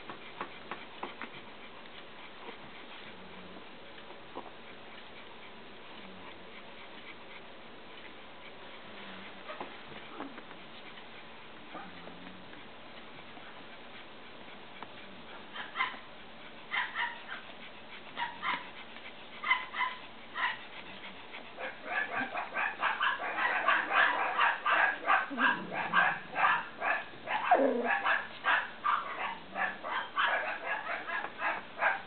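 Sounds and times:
puppy whining: 9.1 - 11.0, 13.4 - 32.0
puppies yipping: 14.7 - 32.0.

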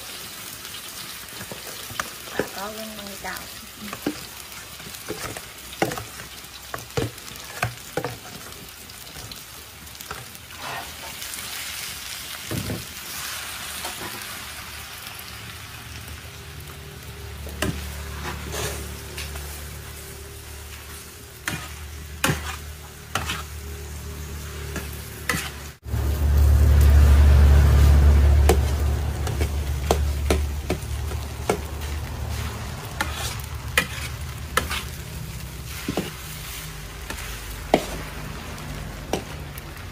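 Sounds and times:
rice sizzling in a wok: 0.0 - 39.9
metal spatula scraping a wok: 10.1 - 11.9, 17.5 - 25.8, 27.5 - 39.6.

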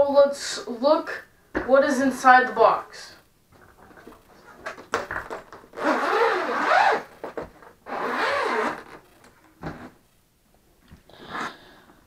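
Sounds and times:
zipper unzipping: 5.8 - 9.0, 11.2 - 11.6.

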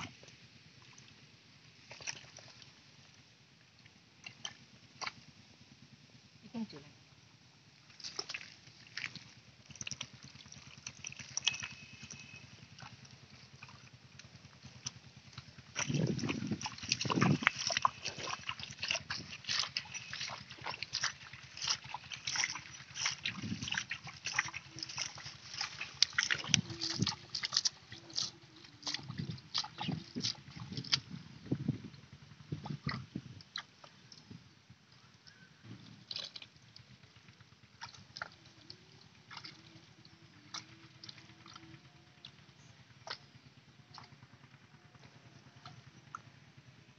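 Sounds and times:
hands squelching in mud: 1.9 - 2.7, 7.9 - 31.3, 37.7 - 42.4.

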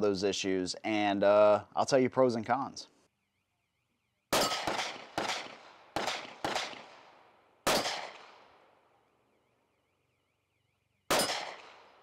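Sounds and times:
pistol shots echoing: 4.3 - 8.8, 11.1 - 12.0.

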